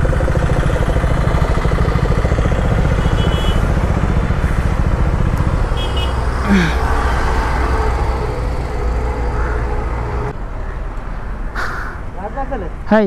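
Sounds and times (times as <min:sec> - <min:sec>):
motorcycle engine at low revs: 0:00.0 - 0:06.8.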